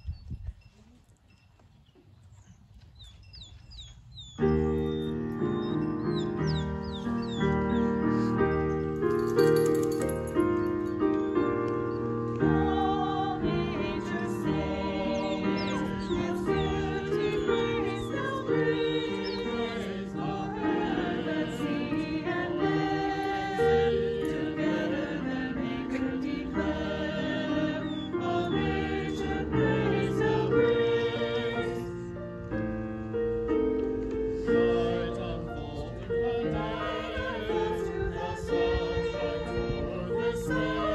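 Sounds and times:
electric keyboard: 0:04.4 - 0:40.9
mixed choir singing: 0:12.3 - 0:32.1, 0:34.3 - 0:40.9.

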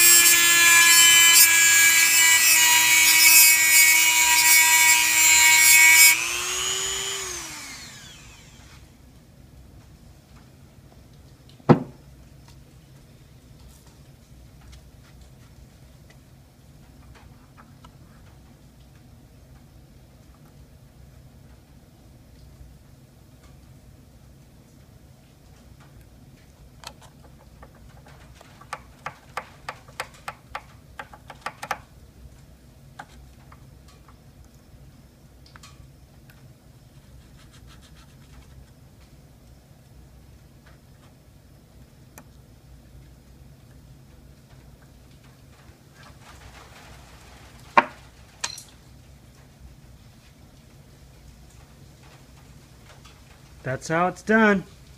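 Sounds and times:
rotary tool grinding metal: 0:00.0 - 0:08.8
sharp knock: 0:11.7 - 0:12.0.

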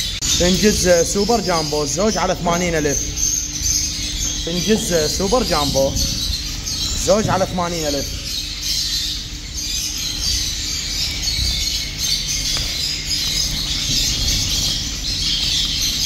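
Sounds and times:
finches chirping: 0:00.0 - 0:16.0
low hum: 0:00.0 - 0:16.0.

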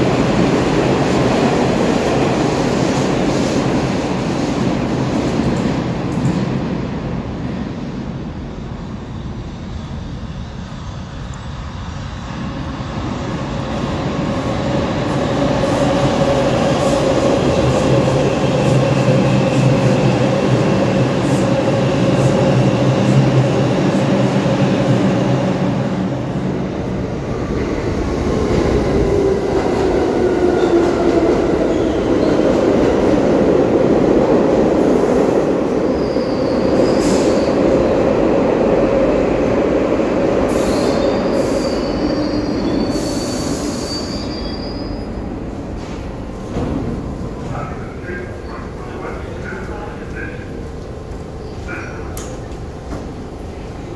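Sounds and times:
express subway train running through: 0:00.0 - 0:53.9
wheel and brake squeals: 0:40.7 - 0:45.2.

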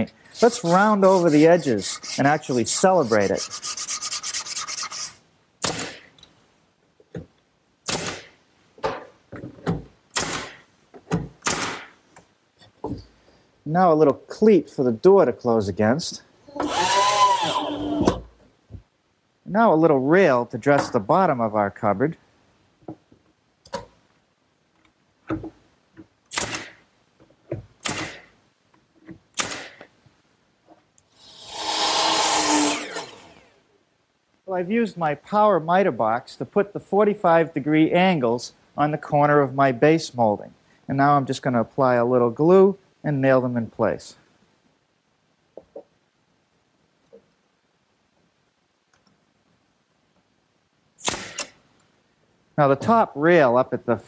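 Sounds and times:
nail gun shots: 0:05.6 - 0:06.1, 0:07.8 - 0:08.4, 0:10.1 - 0:10.6, 0:11.4 - 0:12.0, 0:26.3 - 0:26.8, 0:27.8 - 0:28.3, 0:29.4 - 0:29.8, 0:51.0 - 0:51.6
nail gun clacking: 0:51.0 - 0:51.6.

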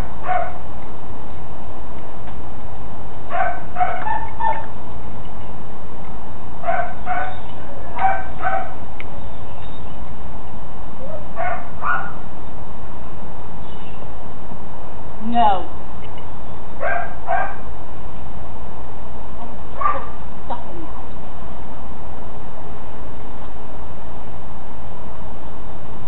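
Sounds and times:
dog barking: 0:00.0 - 0:00.6, 0:03.3 - 0:04.7, 0:06.6 - 0:08.8, 0:11.0 - 0:12.3, 0:16.8 - 0:17.7, 0:19.8 - 0:20.2.

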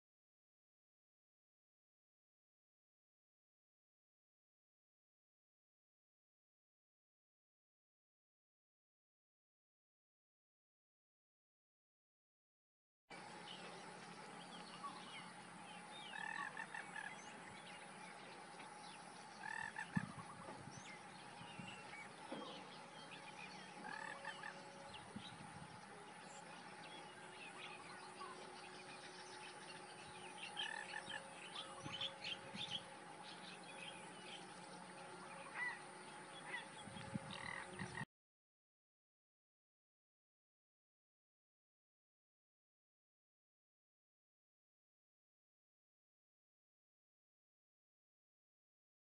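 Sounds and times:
steady drone: 0:13.1 - 0:38.1
bird calls: 0:13.2 - 0:38.1
frogs calling: 0:14.7 - 0:38.0.

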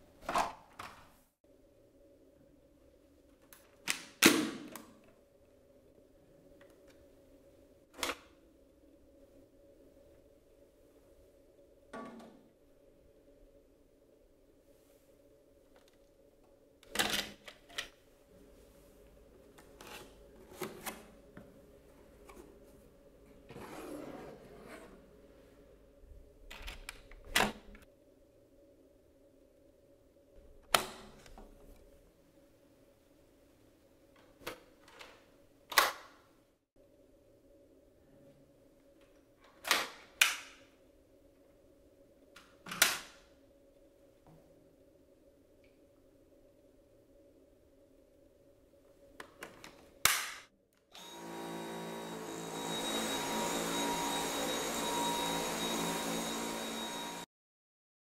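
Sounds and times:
plastic parts snapping into place: 0:49.2 - 0:50.5.

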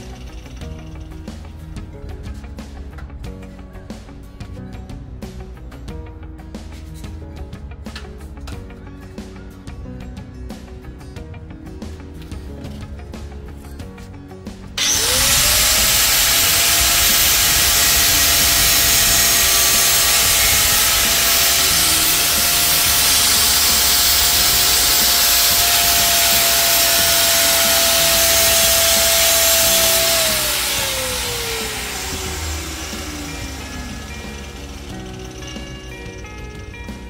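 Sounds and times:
angle grinder grinding steel: 0:00.0 - 0:01.2, 0:14.8 - 0:37.0.

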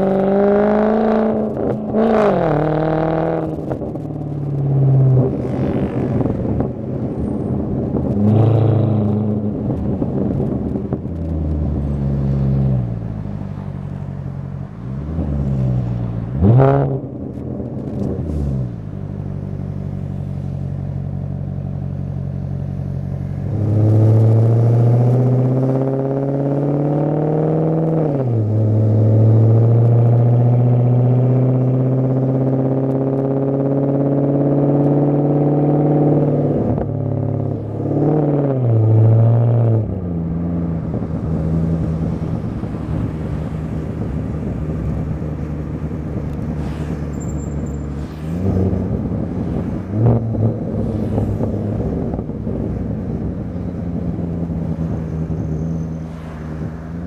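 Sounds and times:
engine revs: 0:00.0 - 0:06.7, 0:23.4 - 0:57.0
car engine from inside cabin: 0:00.0 - 0:56.9.

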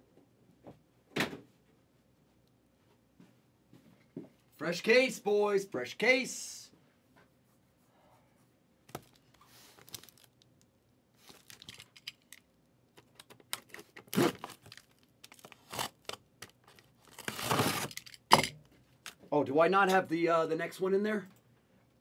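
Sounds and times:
cardboard and tape tearing: 0:13.5 - 0:18.2.

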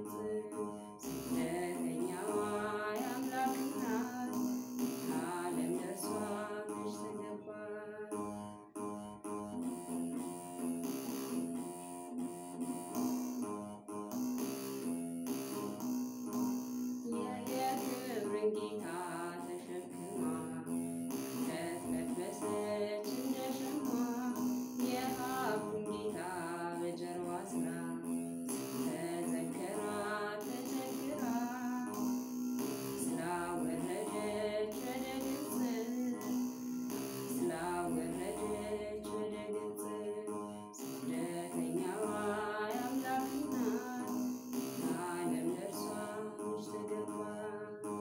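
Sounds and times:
woman singing a hymn: 0:00.0 - 0:04.4, 0:05.1 - 0:08.1, 0:17.1 - 0:20.6, 0:21.4 - 0:28.0, 0:28.8 - 0:32.0, 0:33.0 - 0:36.3, 0:37.3 - 0:44.1, 0:44.8 - 0:47.8
plucked lyre buzzing: 0:00.0 - 0:48.0.

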